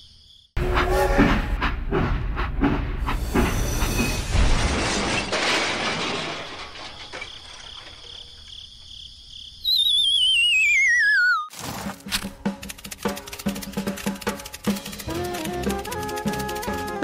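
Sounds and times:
train rumble and clatter: 0.6 - 4.6
warbling whistle sliding down: 9.7 - 11.5.

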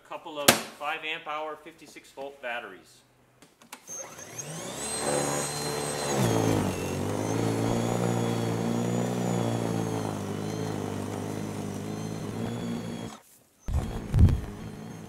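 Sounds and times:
snow blower motor whine: 3.9 - 15.0.

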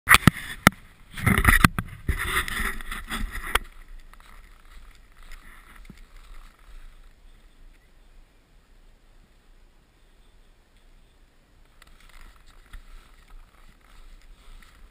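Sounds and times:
camera being handled: 0.1 - 7.0, 11.7 - 14.9
steady hiss: 1.8 - 14.9.

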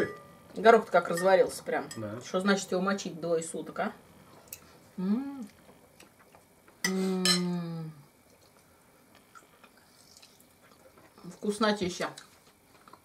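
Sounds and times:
person humming: 5.0 - 5.5, 6.9 - 8.0.

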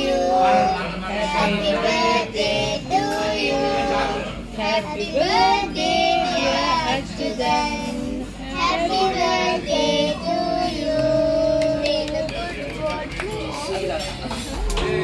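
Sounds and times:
instrumental backing music: 7.4 - 15.0.

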